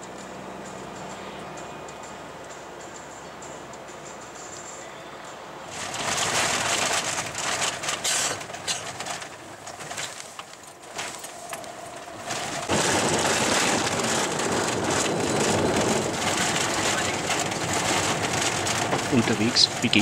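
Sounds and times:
tyre and road noise on gravel: 0.0s - 20.0s
small clicks and rattles: 5.7s - 20.0s.

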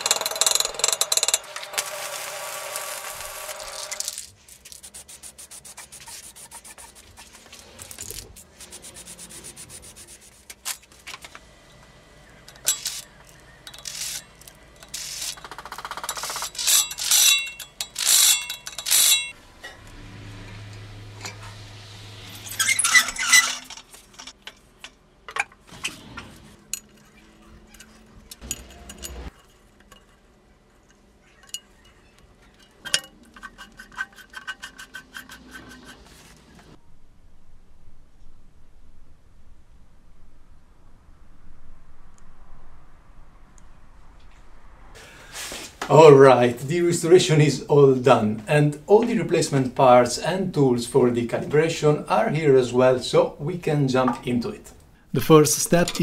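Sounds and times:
rubbing: 1.8s - 10.6s
low hum: 17.9s - 24.3s, 36.8s - 45.1s.

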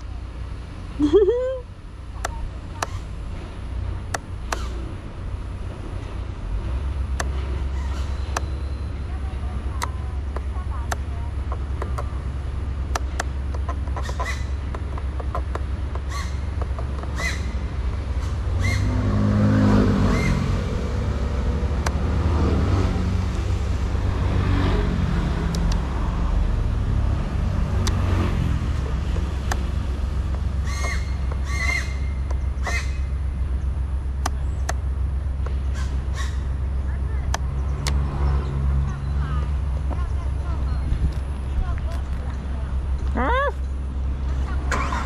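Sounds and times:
low traffic rumble: 0.0s - 45.0s
harsh bird calls: 7.4s - 9.0s, 13.7s - 14.7s, 16.0s - 19.1s, 30.5s - 33.8s, 35.5s - 41.0s
vehicle passing by: 14.0s - 45.0s.

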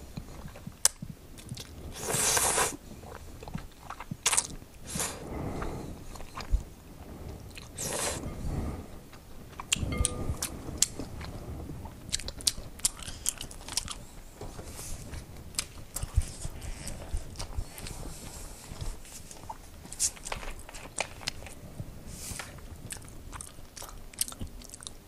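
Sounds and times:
wet chewing and mouth clicks: 0.1s - 6.7s, 9.5s - 14.1s, 15.5s - 21.6s, 22.8s - 25.0s
noodle slurp: 1.9s - 6.5s, 7.6s - 8.2s.

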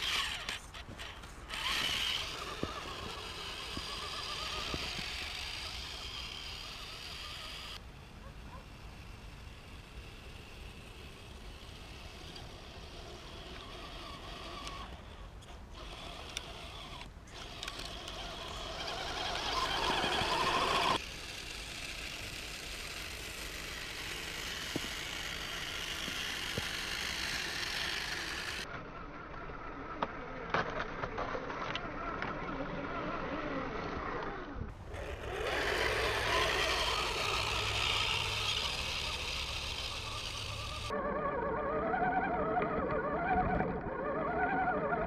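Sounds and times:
electric motors whining: 0.0s - 45.0s.

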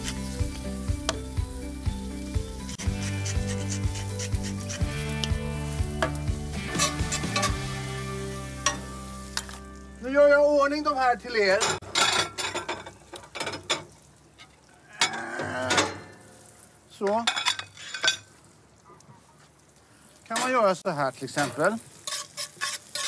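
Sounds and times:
spinach sizzling in a pan: 0.0s - 11.5s, 16.1s - 23.0s
metal utensils clattering: 6.7s - 7.6s, 11.4s - 13.9s, 17.1s - 18.3s, 21.3s - 23.0s.

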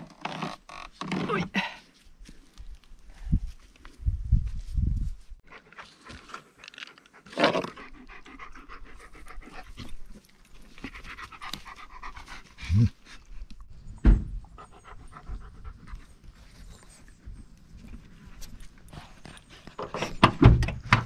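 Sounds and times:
dog panting: 7.2s - 9.9s, 10.8s - 13.4s, 14.5s - 17.4s
knocks and thumps: 14.0s - 14.4s, 19.8s - 21.0s.

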